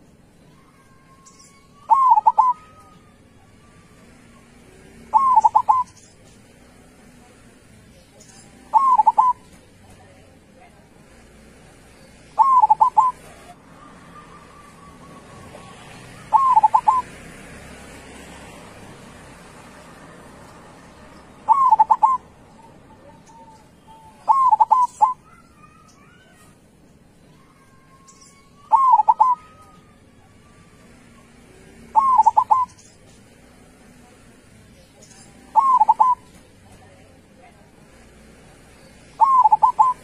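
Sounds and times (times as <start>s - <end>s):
dove cooing song: 0.6s - 6.7s, 8.4s - 9.6s, 12.0s - 26.4s, 27.6s - 36.6s, 38.9s - 40.0s.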